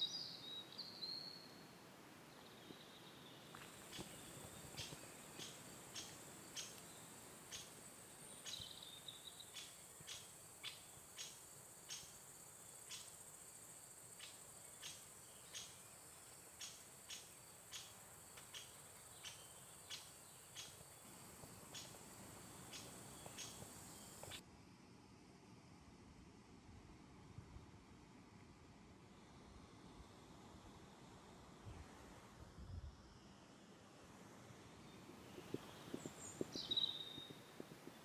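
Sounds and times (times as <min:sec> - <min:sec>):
insects chirping: 0:00.0 - 0:24.4, 0:33.0 - 0:38.0.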